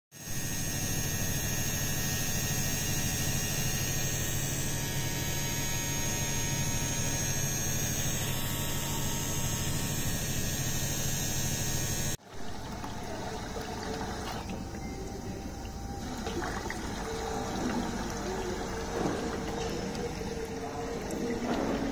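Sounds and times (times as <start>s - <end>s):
pump humming: 0.2s - 21.9s
water bubbling and trickling: 12.3s - 21.9s.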